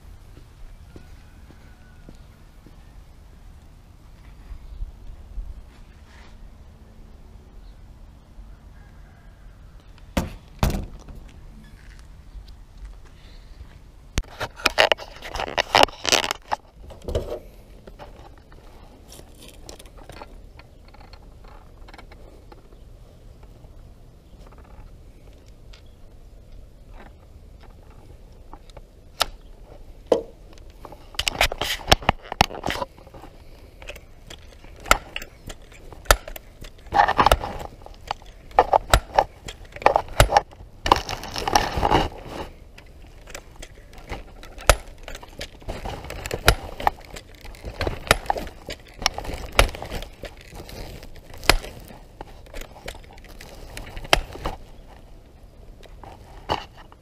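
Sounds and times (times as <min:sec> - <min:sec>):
rustling: 0:04.1 - 0:06.6, 0:29.5 - 0:57.0
rifle handling clicks and knocks: 0:14.2 - 0:22.8, 0:26.5 - 0:55.1.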